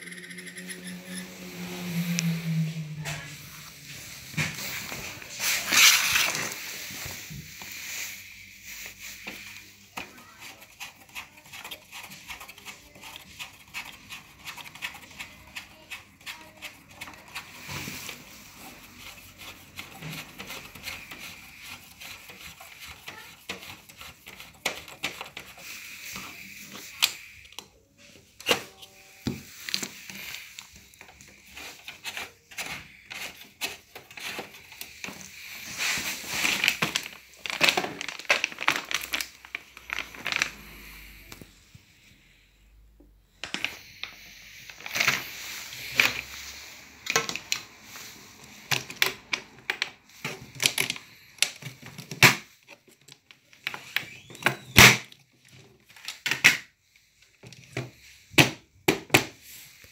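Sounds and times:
plastic bag crinkling: 0:04.0 - 0:08.2, 0:34.4 - 0:41.0.

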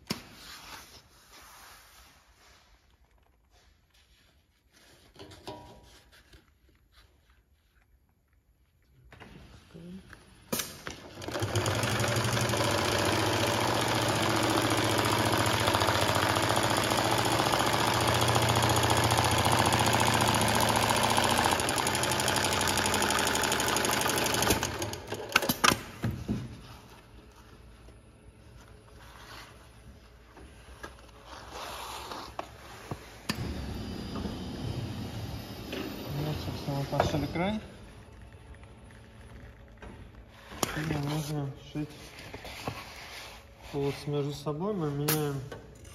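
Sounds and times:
industrial sewing machine stitching: 0:11.0 - 0:25.8.

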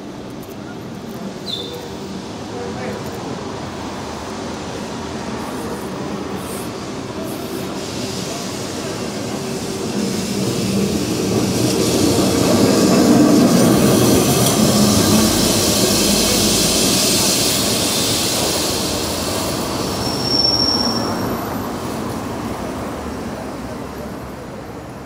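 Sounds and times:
tram rumbling along rails: 0:00.0 - 0:25.0
high wheel squeal: 0:19.4 - 0:21.6.

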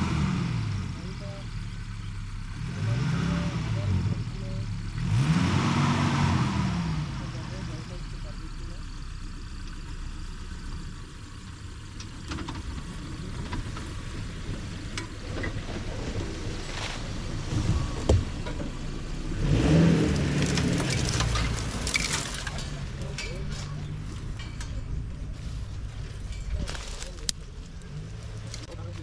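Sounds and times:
engine running at low revs: 0:00.0 - 0:29.0
leaves and twigs crackling: 0:15.2 - 0:18.2, 0:20.0 - 0:29.0.

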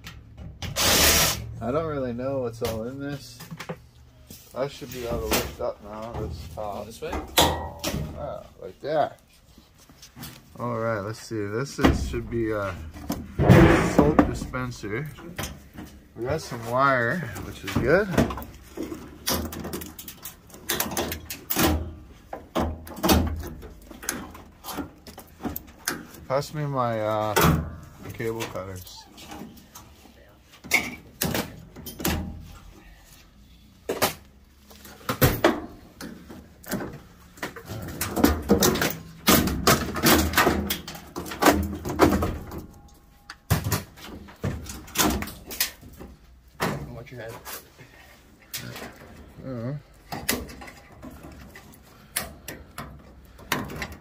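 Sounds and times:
louder knocks: 0:13.4 - 0:14.4
plastic and metal parts rattling: 0:17.1 - 0:26.3, 0:34.8 - 0:47.6, 0:49.9 - 0:54.0.

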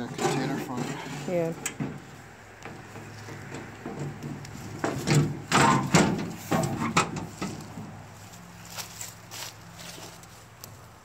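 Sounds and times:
sheet metal knocks and rattles: 0:02.6 - 0:07.9.

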